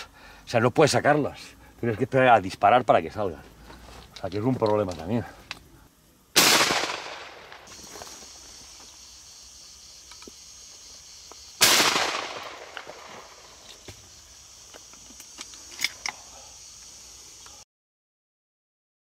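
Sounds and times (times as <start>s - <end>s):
shotgun shot with echo: 6.4s - 7.7s, 11.6s - 13.1s.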